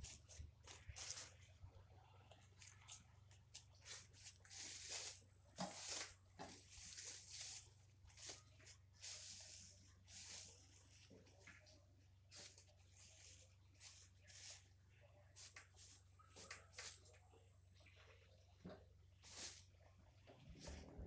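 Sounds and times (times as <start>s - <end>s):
plastic wrapping crinkling: 0.0s - 1.5s, 2.3s - 14.6s.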